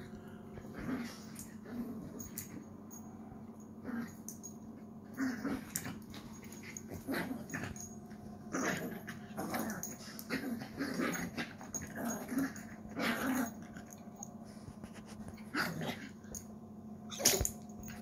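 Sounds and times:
small dog play growling: 0:00.0 - 0:02.7, 0:03.5 - 0:18.0.

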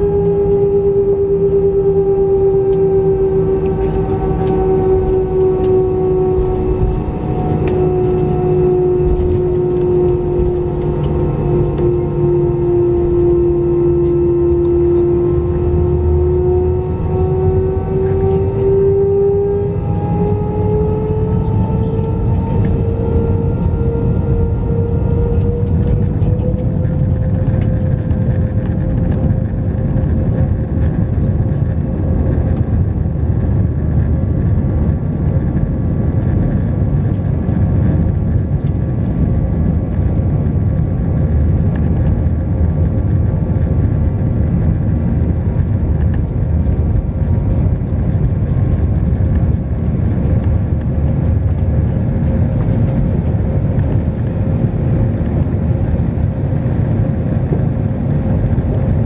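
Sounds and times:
jet engines rumbling with whine: 0:00.0 - 0:59.0.

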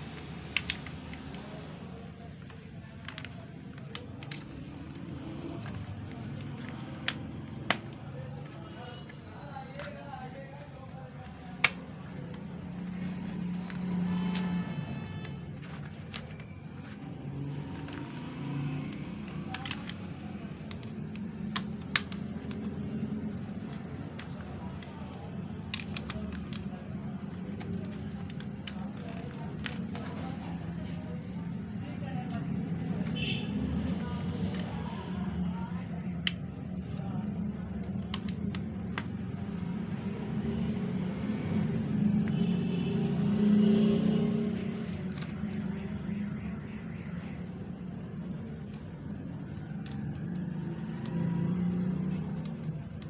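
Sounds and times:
plastic parts clicking: 0:00.2 - 0:01.5, 0:17.6 - 0:30.2, 0:37.7 - 0:39.5.

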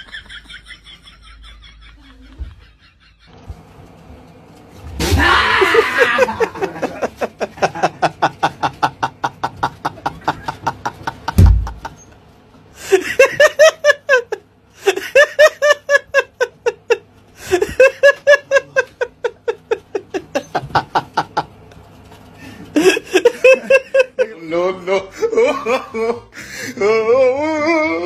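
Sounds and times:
person laughing hard: 0:00.0 - 0:03.4, 0:05.2 - 0:12.0, 0:12.8 - 0:21.5, 0:22.7 - 0:28.0
loud thump: 0:11.4 - 0:11.8.

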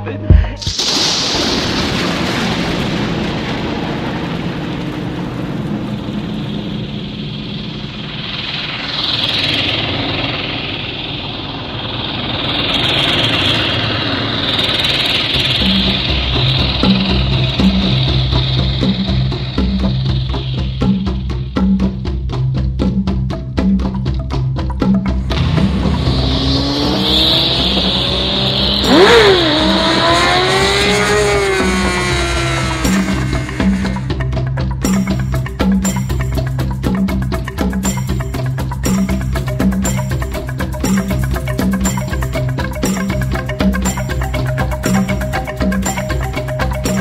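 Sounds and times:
music with drum pattern: 0:00.0 - 0:00.9, 0:15.2 - 0:47.0
motorcycle engine: 0:05.5 - 0:21.3, 0:25.2 - 0:34.4
wind and road noise: 0:25.2 - 0:34.2.

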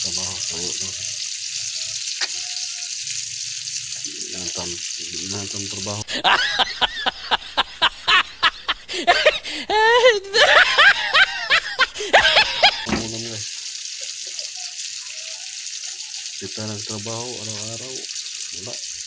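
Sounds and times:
fish sizzling in oil: 0:00.0 - 0:09.0, 0:10.6 - 0:19.0
hearty laughter: 0:06.1 - 0:13.0.

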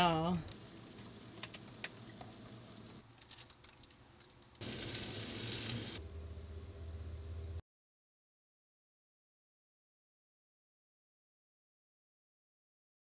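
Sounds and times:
steady hiss: 0:04.6 - 0:06.0
low steady hum: 0:04.6 - 0:07.6.

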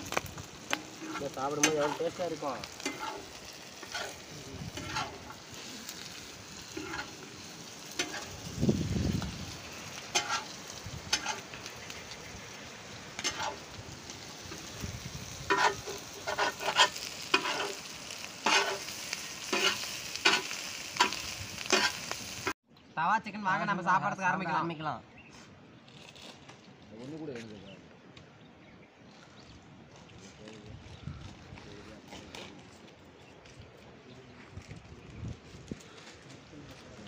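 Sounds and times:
food sizzling: 0:00.0 - 0:22.6
metal spatula scraping iron griddle: 0:00.7 - 0:08.6, 0:10.0 - 0:12.2, 0:13.2 - 0:13.7, 0:15.3 - 0:22.2.

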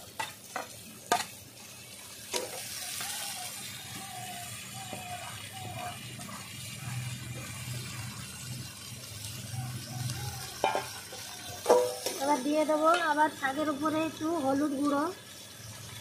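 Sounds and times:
oil sizzling: 0:00.0 - 0:16.0
metal plate clanking: 0:11.6 - 0:12.3.

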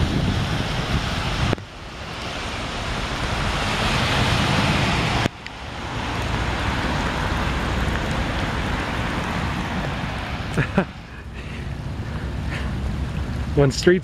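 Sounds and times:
wind buffeting microphone: 0:00.0 - 0:10.9
hiss of storm water: 0:00.0 - 0:13.7
traffic on wet pavement: 0:00.0 - 0:14.0.

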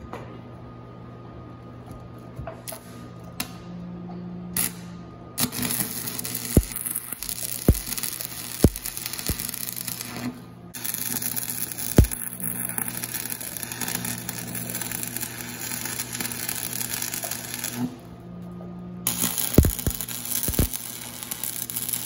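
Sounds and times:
welding arc crackling: 0:04.6 - 0:18.1, 0:19.0 - 0:22.0
sharp pops: 0:19.5 - 0:20.8.

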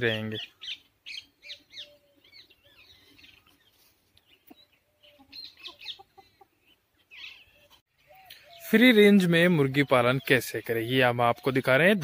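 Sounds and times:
chickens clucking: 0:04.2 - 0:08.5.

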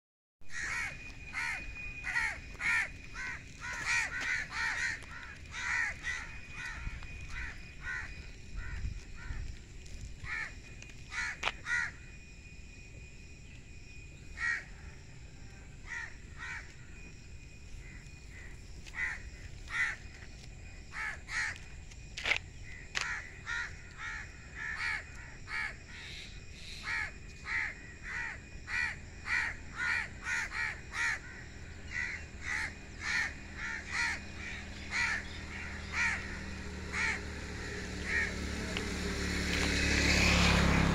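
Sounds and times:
faint steady high tone: 0:00.4 - 0:39.5
birds calling: 0:00.5 - 0:09.6, 0:22.6 - 0:39.0.

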